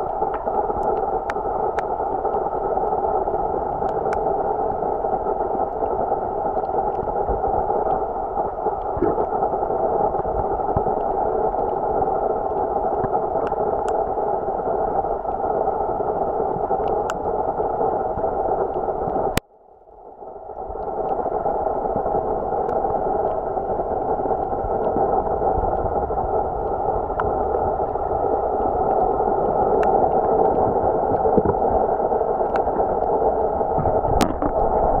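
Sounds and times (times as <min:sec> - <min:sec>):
muffled underwater water rush: 0:00.0 - 0:35.0
faint clicks: 0:12.5 - 0:14.0.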